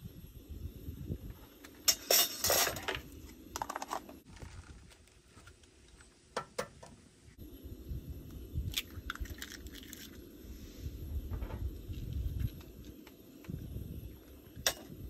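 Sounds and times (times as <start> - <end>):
low rumble: 7.4 - 15.0.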